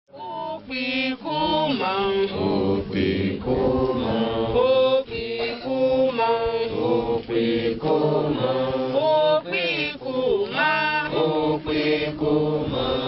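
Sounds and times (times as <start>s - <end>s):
group singing chant-like prayer: 0.1s - 13.0s.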